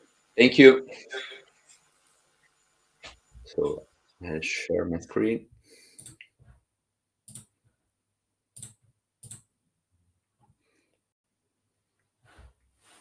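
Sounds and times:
computer mouse clicks: 6.0 - 6.3, 7.3 - 7.5, 8.6 - 9.5.

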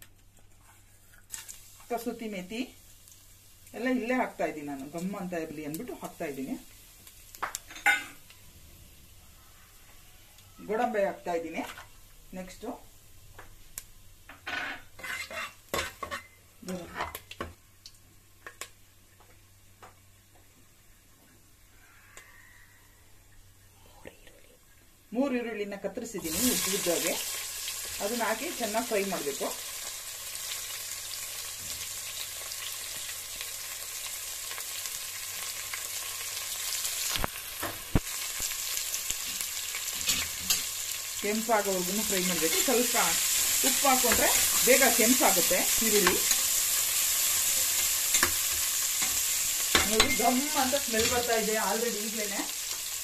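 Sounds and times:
light sizzle of frying: 0.0 - 53.0
spoon scraping a pot: 14.4 - 16.4.

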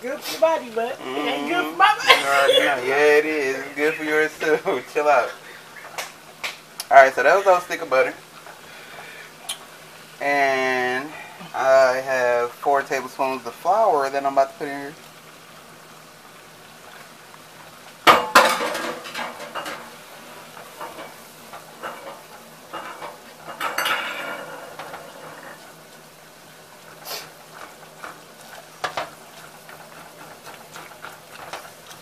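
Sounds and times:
butter sizzling: 0.0 - 32.0
whisk scraping a saucepan: 18.4 - 32.0.

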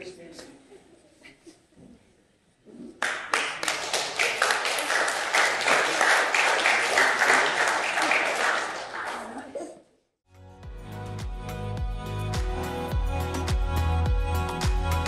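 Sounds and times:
congregation applauding: 3.0 - 9.6.

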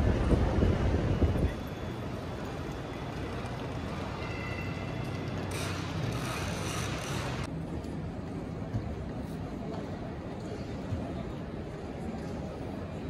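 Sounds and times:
wind buffeting microphone: 0.0 - 1.6.

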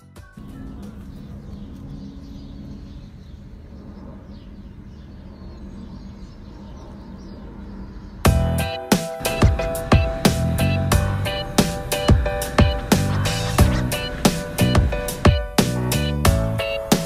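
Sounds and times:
low rumble: 0.4 - 16.6
faint bird chirps: 0.4 - 17.0
loud music: 8.3 - 17.0.

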